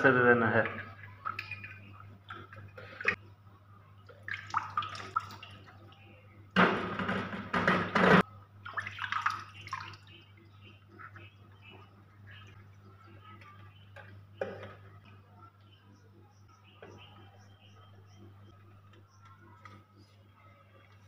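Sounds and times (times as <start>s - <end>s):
water splashing and dripping: 0.6s - 3.2s, 4.0s - 6.1s, 8.6s - 10.4s.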